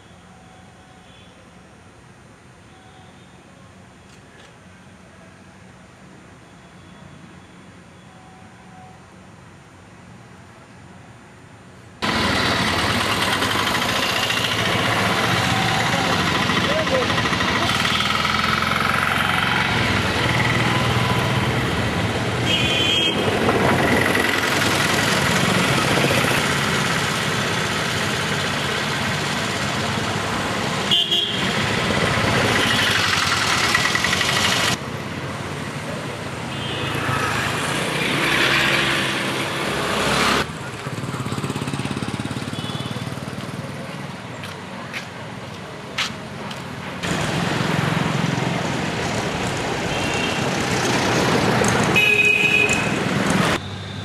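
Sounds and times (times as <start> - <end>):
motorcycles and scooters passing: 12.0 - 44.6, 46.3 - 54.0.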